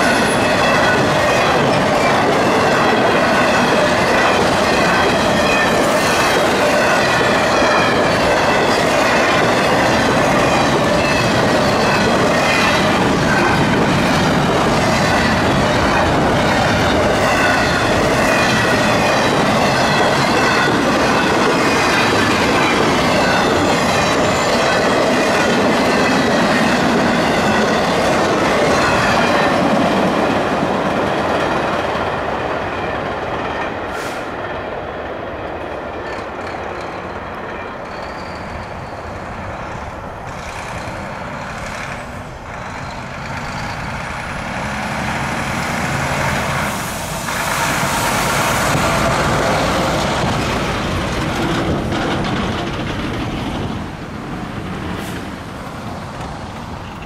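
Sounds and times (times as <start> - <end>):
train wheels rumbling and clattering: 0.0 - 57.0
wheels squealing: 37.8 - 45.0.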